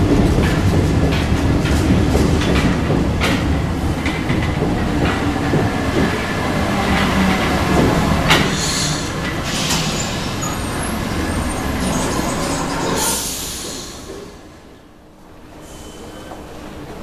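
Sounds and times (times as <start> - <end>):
train wheels rumbling on rails: 0.0 - 17.0
burst of hiss: 13.0 - 14.2.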